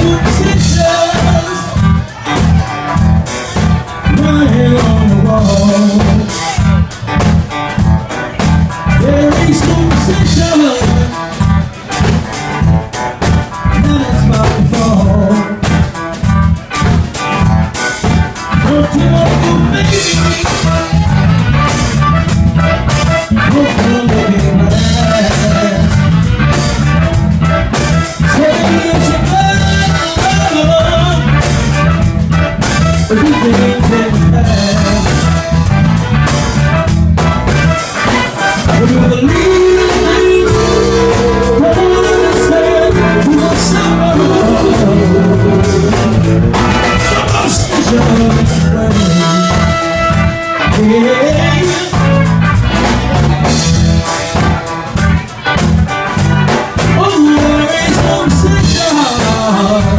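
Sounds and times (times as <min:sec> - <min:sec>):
people singing: 0:00.0 - 0:03.0, 0:38.1 - 0:49.5, 0:57.0 - 0:59.9
drums: 0:00.0 - 0:59.9
heavy bass line: 0:00.0 - 0:59.9.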